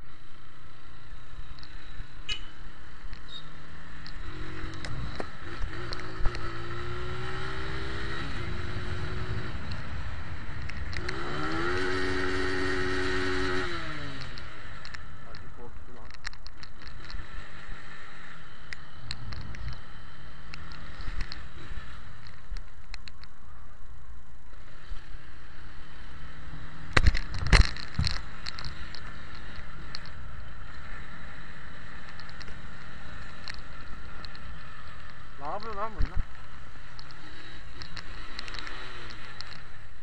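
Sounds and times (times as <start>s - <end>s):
motorcycle engine running: 0.0s - 23.8s, 24.4s - 40.0s
wind and road noise: 0.0s - 40.0s
light rattling clicks: 10.5s - 11.2s, 14.2s - 17.2s, 18.6s - 23.4s, 26.8s - 30.8s, 31.6s - 39.8s.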